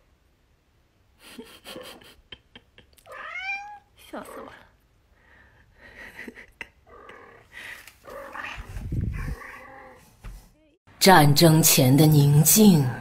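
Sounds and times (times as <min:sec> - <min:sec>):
kitten mewing: 0:03.0 - 0:04.6.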